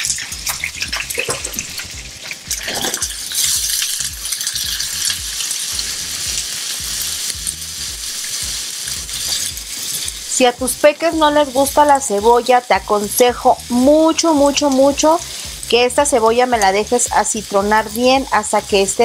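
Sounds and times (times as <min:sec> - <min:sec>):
onion sizzling in hot oil: 0:00.0 - 0:19.0
spatula scraping a frying pan: 0:08.0 - 0:10.3.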